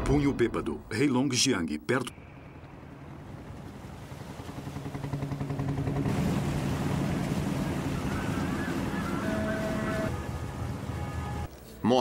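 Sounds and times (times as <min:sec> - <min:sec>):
sea water rushing around bow: 0:03.0 - 0:11.5.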